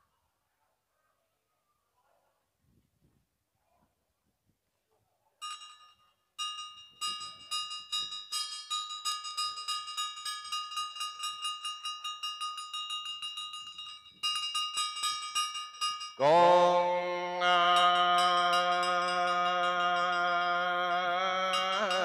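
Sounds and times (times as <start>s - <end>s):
small bell ringing: 5.4s - 22.0s.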